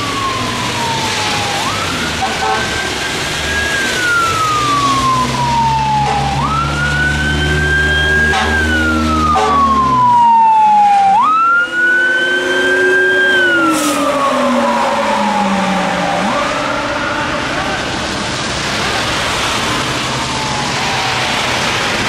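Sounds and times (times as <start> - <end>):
fire truck siren wailing: 0.0 - 22.0
low-frequency siren sweeping: 0.0 - 22.0.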